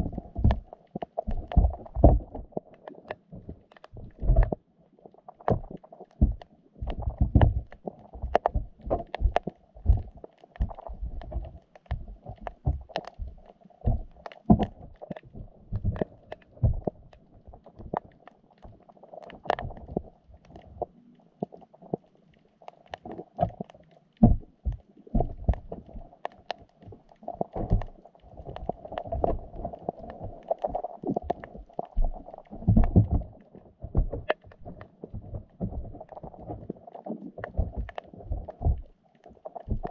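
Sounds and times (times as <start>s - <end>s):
muffled underwater thumps: 0.0s - 2.6s, 3.3s - 4.6s, 5.4s - 18.0s, 24.2s - 26.0s, 26.8s - 39.9s.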